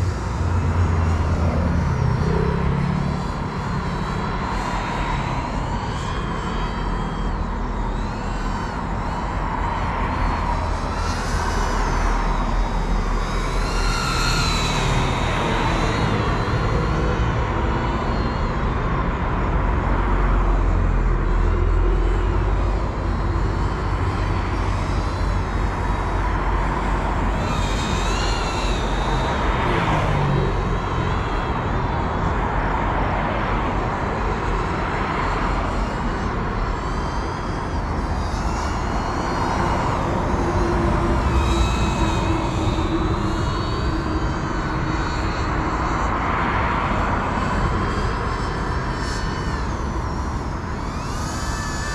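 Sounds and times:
drone propellers whining: 0:00.0 - 0:51.9.

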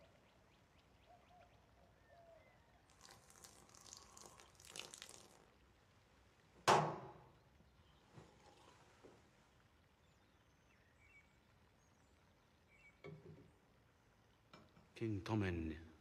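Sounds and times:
faint bird chirps: 0:00.0 - 0:02.9, 0:10.0 - 0:14.8.

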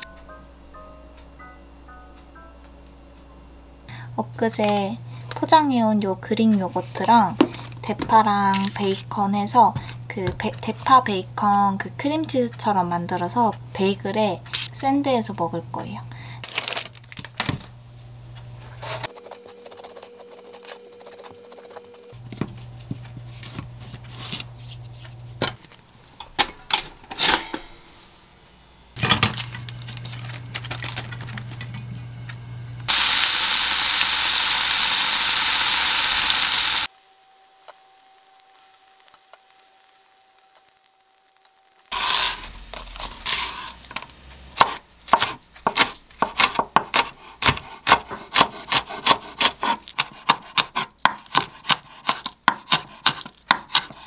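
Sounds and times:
bacon sizzling in a frying pan: 0:32.9 - 0:42.6
knife chopping on wooden board: 0:44.6 - 0:54.0.

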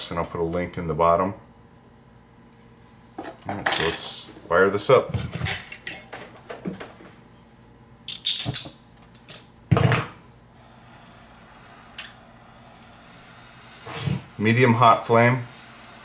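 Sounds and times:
metal clinks: 0:08.1 - 0:08.9
torch flame hissing: 0:10.3 - 0:16.0
gas igniting whoomp: 0:10.6 - 0:16.0
torch lighter rasp: 0:10.6 - 0:16.0.

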